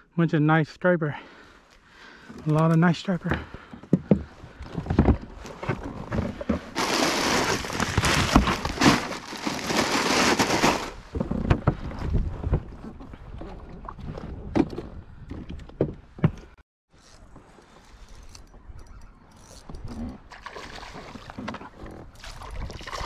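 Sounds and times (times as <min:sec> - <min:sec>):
knocks and thumps of handling: 0:03.3 - 0:09.2.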